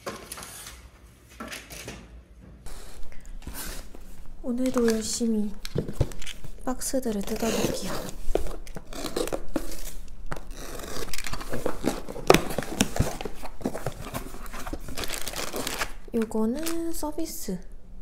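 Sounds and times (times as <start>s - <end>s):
plastic packing rustling: 2.7s - 17.2s
box cutter slitting tape: 7.2s - 15.9s.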